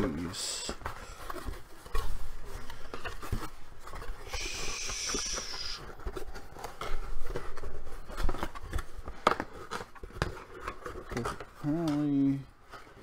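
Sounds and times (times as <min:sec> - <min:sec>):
cardboard rustling and scraping: 0:00.0 - 0:13.0
cardboard sliding or tearing hiss: 0:04.1 - 0:06.0.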